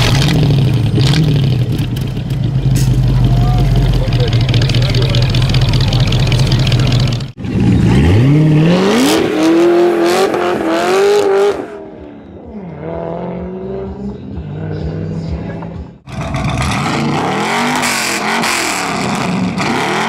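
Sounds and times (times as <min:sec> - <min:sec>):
car engine idling: 0:00.0 - 0:08.3
car engine accelerating hard: 0:02.6 - 0:11.8, 0:12.5 - 0:20.0.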